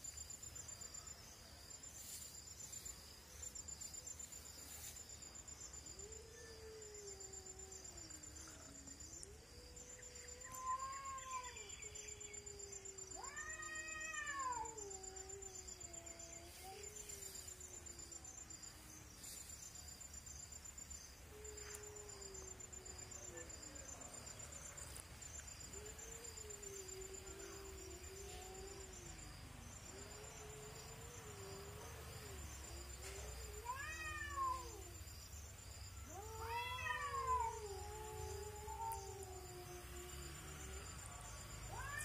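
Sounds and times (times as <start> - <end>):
cats yowling: 9.9 - 11.9, 12.6 - 17.2, 33.0 - 35.0, 36.0 - 42.0.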